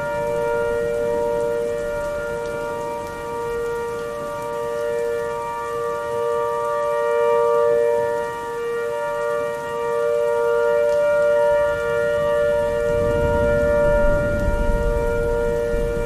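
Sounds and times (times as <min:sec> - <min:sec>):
warning siren two-note chord: 0:00.0 - 0:16.0.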